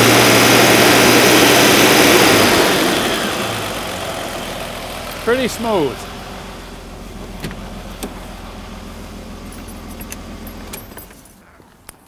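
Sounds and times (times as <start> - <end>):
car engine idling: 0.0 - 11.8
keys jingling: 9.4 - 12.0.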